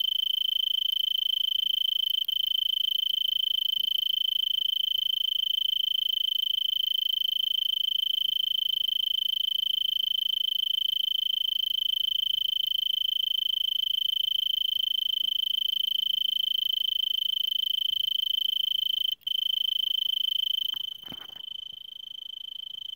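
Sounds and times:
tree cricket trilling: 0:00.0 - 0:22.9.

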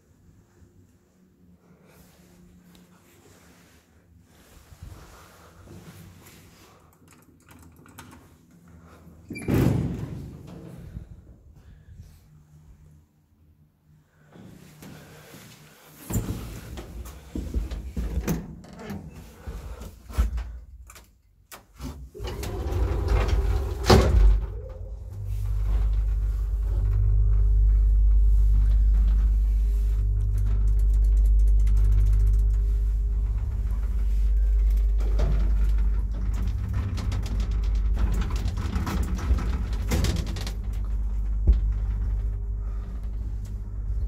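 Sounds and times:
lift doors clattering shut: 0:22.2 - 0:27.7, 0:30.2 - 0:43.4
faint whine: 0:22.2 - 0:44.0
lift car humming: 0:22.2 - 0:44.0.

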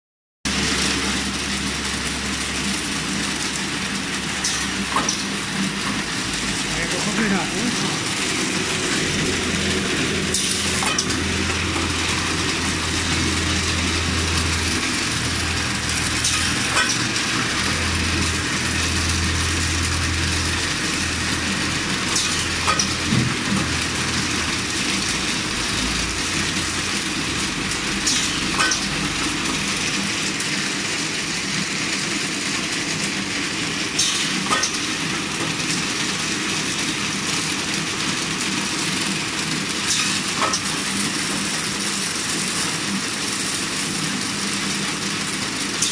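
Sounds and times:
machine hiss and hum: 0:00.5 - 0:45.9.

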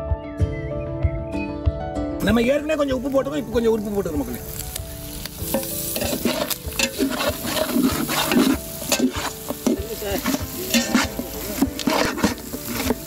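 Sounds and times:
meat sizzling: 0:02.2 - 0:13.0
metal spatula scraping a pot: 0:05.5 - 0:13.0.

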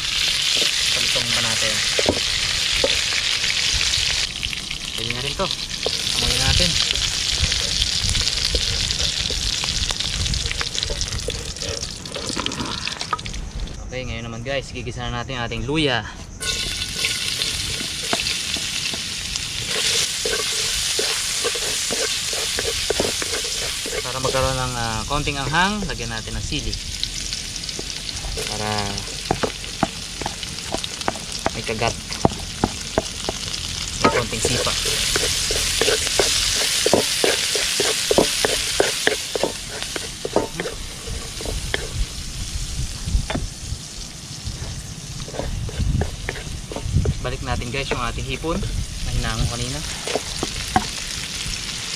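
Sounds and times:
ginger sizzling in hot oil: 0:00.0 - 0:13.4, 0:16.4 - 0:51.9
wooden spatula scraping wok: 0:00.1 - 0:04.3, 0:05.7 - 0:13.0, 0:16.4 - 0:25.9, 0:27.7 - 0:42.2, 0:44.5 - 0:51.2
wooden spatula scraping pan: 0:16.4 - 0:24.8, 0:34.0 - 0:42.1, 0:44.6 - 0:48.1, 0:49.8 - 0:50.9.

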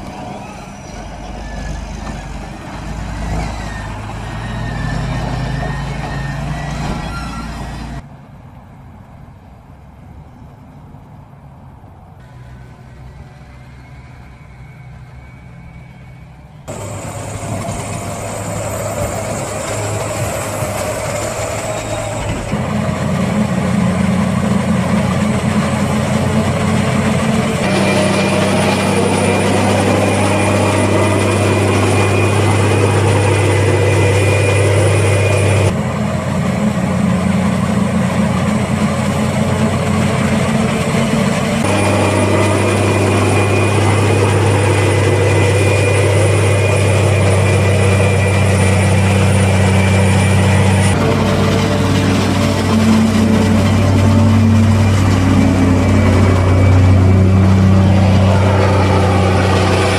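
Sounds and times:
harvester engine hum: 0:00.0 - 0:59.9
high whine: 0:12.2 - 0:59.9.

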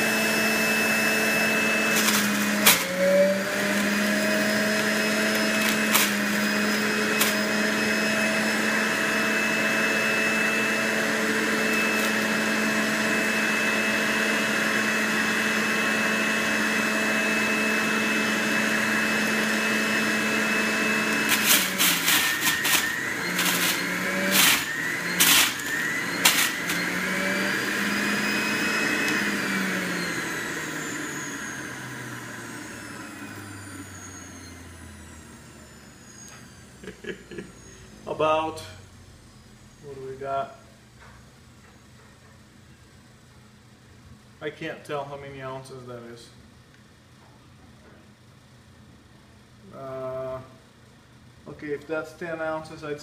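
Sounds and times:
juicer motor whining: 0:00.0 - 0:38.6.

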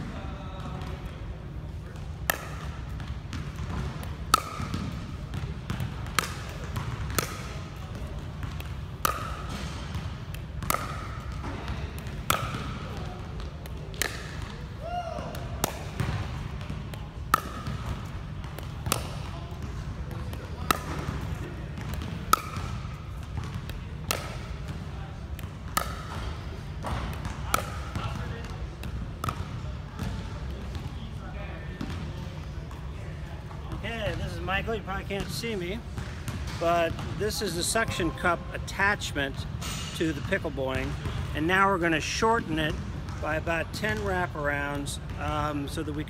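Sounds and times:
steady low hum: 0:00.0 - 0:45.9
paddle striking plastic ball: 0:03.5 - 0:05.4, 0:06.0 - 0:07.8, 0:08.4 - 0:12.9, 0:13.6 - 0:14.6, 0:15.6 - 0:28.2.

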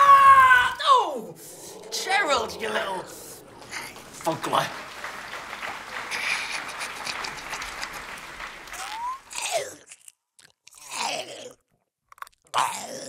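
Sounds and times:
creature chewing and crunching: 0:08.8 - 0:13.0.

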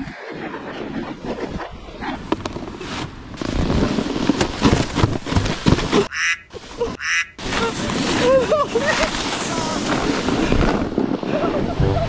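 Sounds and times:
snowboards scraping on snow: 0:02.0 - 0:06.0, 0:07.4 - 0:11.7.

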